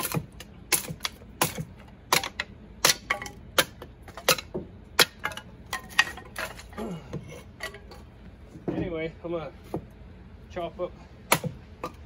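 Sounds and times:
hatchet chopping wood: 0.0 - 6.6, 11.3 - 12.0
split sticks clattering: 0.0 - 8.1.

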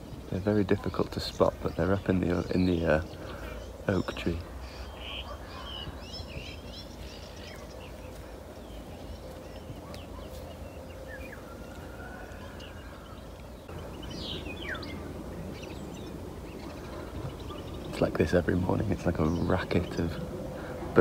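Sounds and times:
birds chirping and whistling: 0.0 - 21.0.

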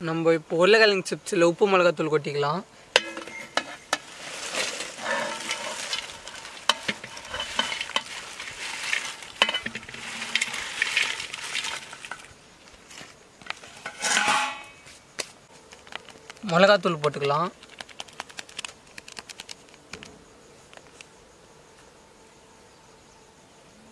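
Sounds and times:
fried chips rustling: 3.9 - 12.3, 15.5 - 19.8
chips clicking on metal bowl: 4.0 - 12.3, 15.7 - 19.6.

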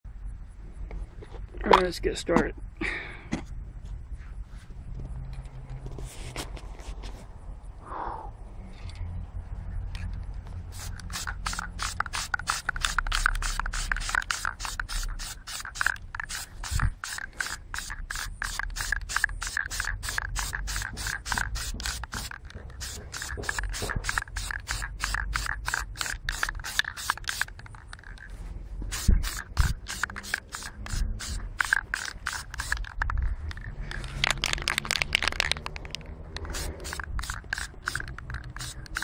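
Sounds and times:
spray paint can spraying: 10.6 - 39.0.

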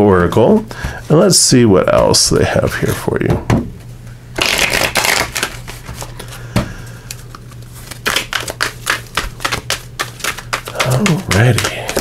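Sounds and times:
cards shuffling and flicking: 4.4 - 12.0.

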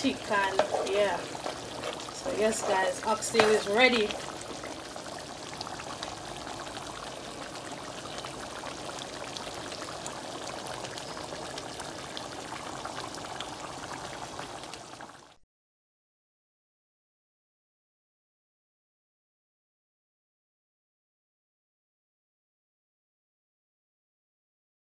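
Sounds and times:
gravy bubbling in a pot: 0.0 - 15.4.

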